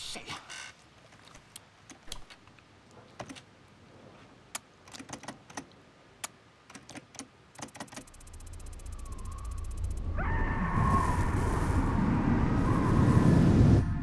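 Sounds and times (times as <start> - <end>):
keyboard typing clicks: 4.6 - 10.0.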